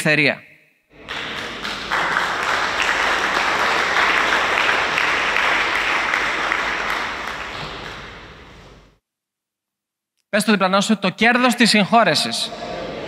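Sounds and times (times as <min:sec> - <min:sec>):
crowd applauding: 0:00.9 - 0:08.8.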